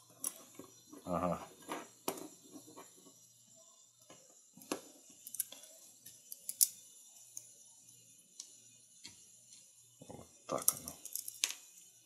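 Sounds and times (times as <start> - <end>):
small metal parts clicking: 5.2 - 7.5, 10.5 - 11.6.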